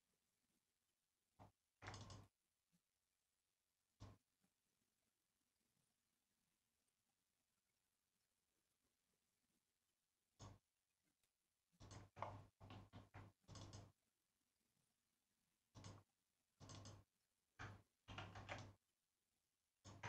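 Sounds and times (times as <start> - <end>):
mouse and keyboard clicks: 1.8 - 2.3, 11.8 - 14.0, 15.7 - 18.8.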